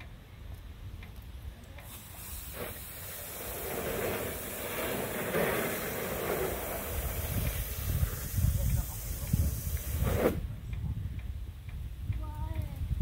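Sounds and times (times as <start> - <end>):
hose nozzle spraying water: 1.8 - 10.5.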